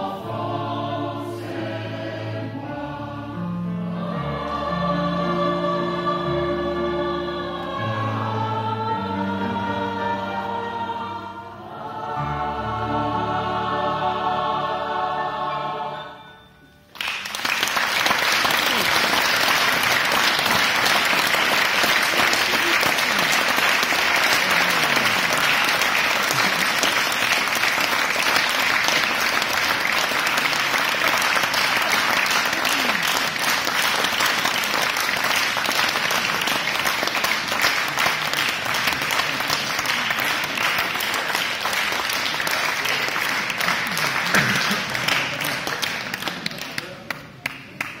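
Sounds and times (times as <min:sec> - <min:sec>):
audience applauding: 0:16.9 - 0:48.0.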